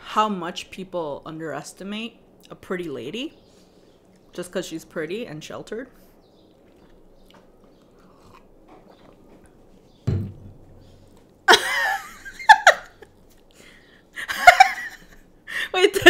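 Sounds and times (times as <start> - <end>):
faint chewing: 3.5 - 4.4, 5.9 - 10.0, 10.7 - 11.5, 12.9 - 14.0
dull thump: 10.1 - 10.7
woman laughing: 11.5 - 13.2, 14.2 - 16.0.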